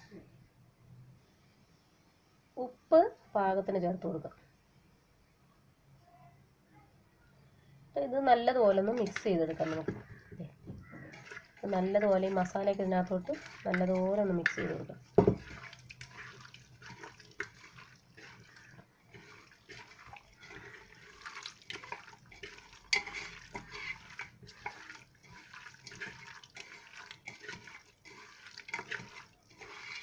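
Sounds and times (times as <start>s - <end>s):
clicks and knocks against pot: 8.9s - 16.2s, 21.6s - 24.9s
hand squelching raw meat: 10.9s - 30.0s.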